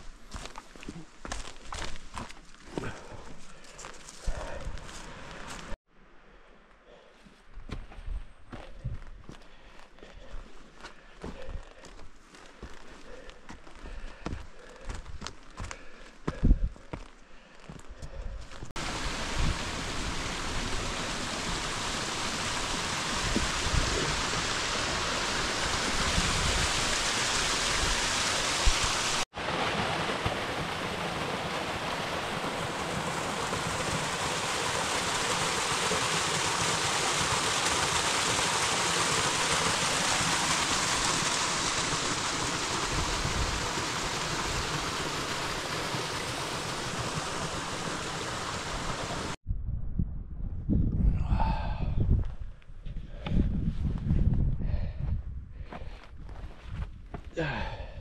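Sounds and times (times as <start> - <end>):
stream water rushing: 18.8 - 49.4.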